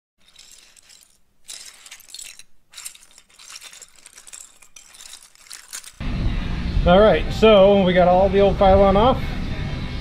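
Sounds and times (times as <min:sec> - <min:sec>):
plastic bricks clattering: 0:00.2 - 0:06.0.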